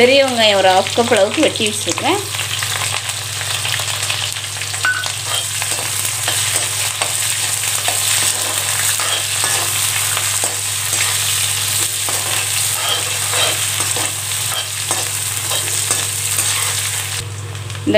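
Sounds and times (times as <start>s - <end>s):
onions sizzling in hot oil: 0.0s - 17.9s
metal spatula scraping pan: 5.2s - 6.8s, 7.8s - 16.9s.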